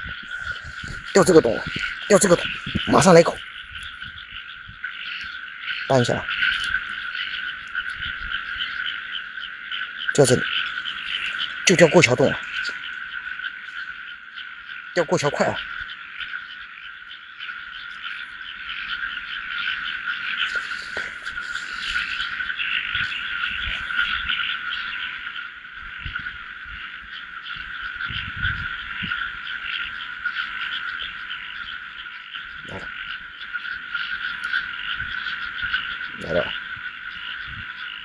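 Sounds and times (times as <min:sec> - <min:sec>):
frogs chorus: 0:00.0 - 0:38.0.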